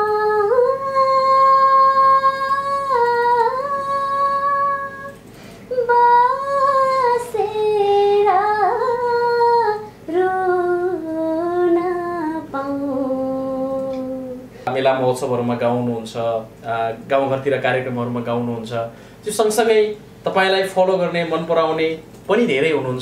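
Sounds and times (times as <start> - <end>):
woman singing solo: 0.0 - 14.6.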